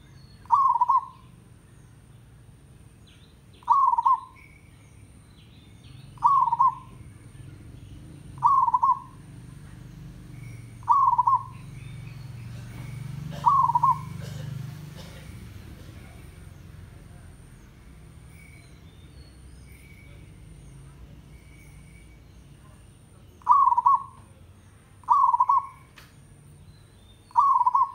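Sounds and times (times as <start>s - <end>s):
dove trilled coos: 0.0s - 1.4s, 3.6s - 4.5s, 6.2s - 16.5s, 23.4s - 24.4s, 25.0s - 25.9s, 27.3s - 27.9s.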